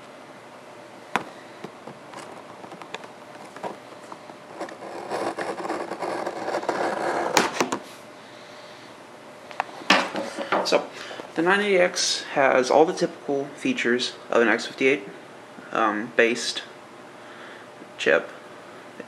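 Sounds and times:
scissors cutting cardboard box: 4.6 - 7.7.

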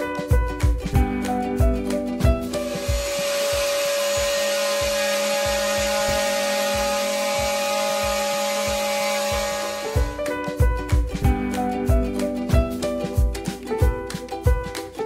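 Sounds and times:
power tool running on tile: 2.6 - 10.2.

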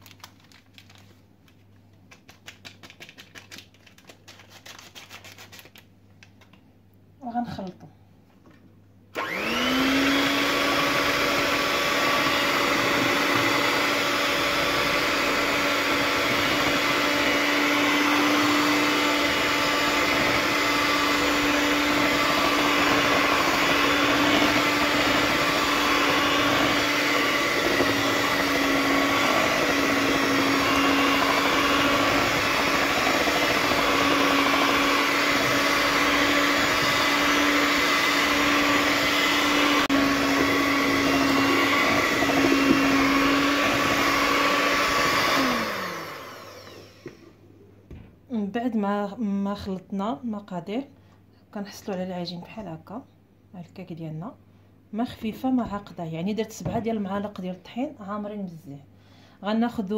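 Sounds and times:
electric hand mixer whisking batter: 9.2 - 47.4.

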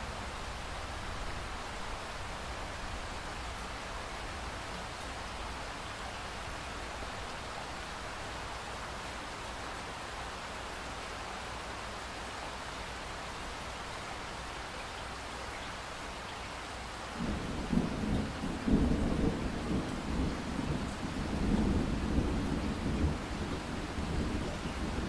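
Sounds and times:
steady rain falling: 0.0 - 25.0
thunder rumbling: 17.2 - 25.0.

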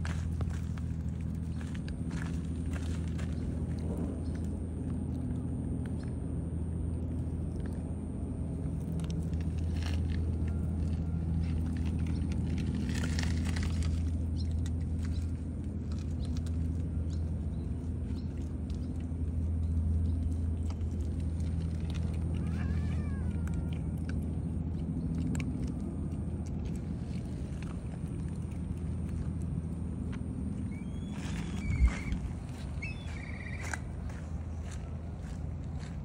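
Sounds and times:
low engine hum: 0.0 - 36.0
ticks and crunches on gravel: 0.0 - 36.0.

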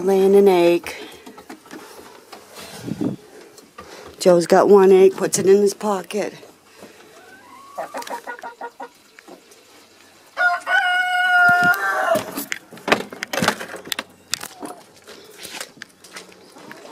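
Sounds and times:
hen clucks: 7.0 - 9.5
rooster crowing: 10.4 - 12.4
sharp knocks and rustles: 11.5 - 16.9.

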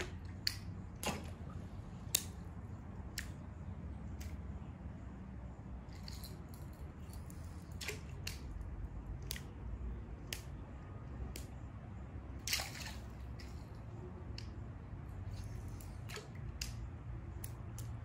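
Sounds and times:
splash-like click: 0.0 - 1.4, 12.4 - 13.5.

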